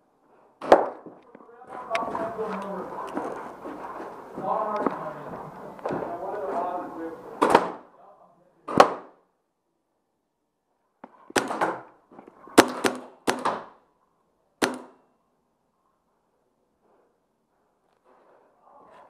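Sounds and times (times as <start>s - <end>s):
paintball gun cracks: 14.6s - 15.0s.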